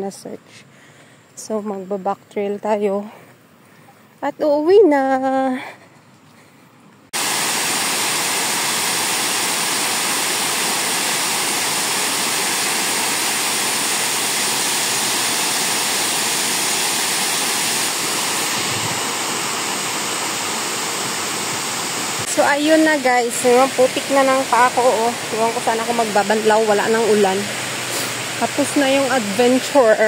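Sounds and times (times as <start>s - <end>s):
water pouring over dam: 7.2s - 22.1s.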